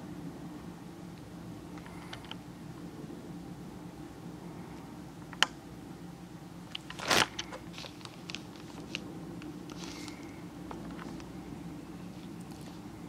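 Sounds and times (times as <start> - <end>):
rustling crunch: 6.8 - 9.0, 9.7 - 10.3.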